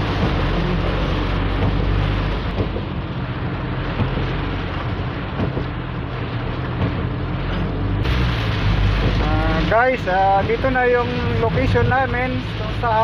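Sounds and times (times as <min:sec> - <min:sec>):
car engine and tyre hum: 0:00.0 - 0:13.0
heavy rain on car roof: 0:00.0 - 0:13.0.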